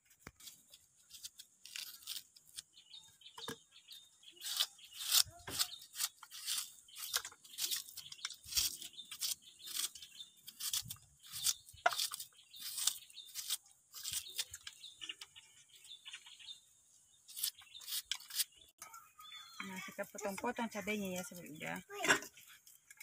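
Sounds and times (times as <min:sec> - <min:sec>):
knife slicing shallot: 0:04.4 - 0:14.6, 0:17.3 - 0:18.5.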